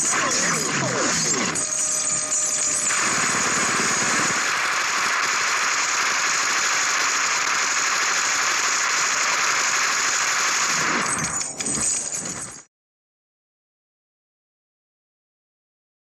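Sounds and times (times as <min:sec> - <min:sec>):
loud harsh noise: 0:00.0 - 0:11.6.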